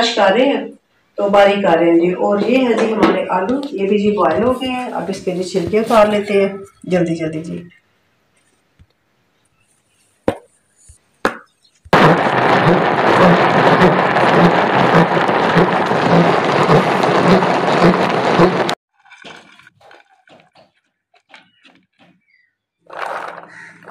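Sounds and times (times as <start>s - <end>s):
food chopper grinding: 12.0s - 18.8s.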